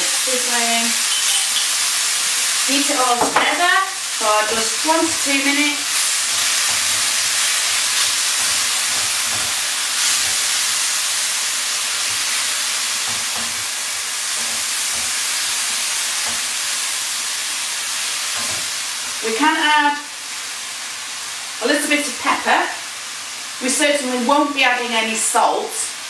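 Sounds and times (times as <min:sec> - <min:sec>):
stir fry sizzling in a pan: 0:00.0 - 0:26.0
utensil knocking against pan: 0:03.2 - 0:03.6.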